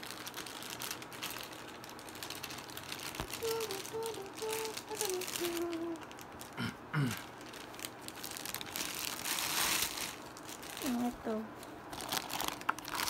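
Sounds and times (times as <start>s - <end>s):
plastic bags crinkling: 0.0s - 13.0s
person humming: 3.2s - 7.2s.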